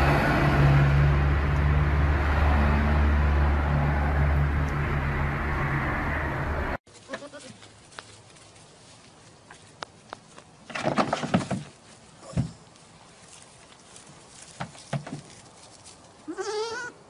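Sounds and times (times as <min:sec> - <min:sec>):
animal bleating: 0:07.0 - 0:07.6, 0:16.2 - 0:17.0.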